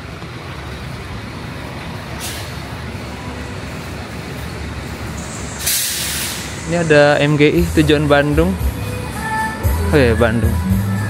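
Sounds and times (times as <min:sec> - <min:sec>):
diesel bus engine idling: 0:00.0 - 0:11.0
compressed air hisses: 0:02.2 - 0:02.6, 0:05.2 - 0:07.1.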